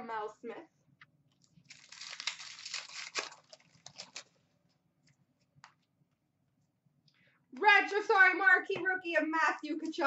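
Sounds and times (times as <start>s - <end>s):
foil wrapper crinkling and tearing: 1.5s - 4.4s.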